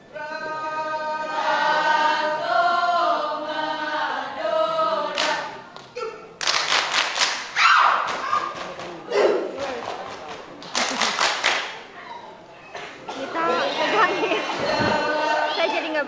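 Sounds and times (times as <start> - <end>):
group singing a cappella: 0.0 - 5.8, 13.1 - 16.0.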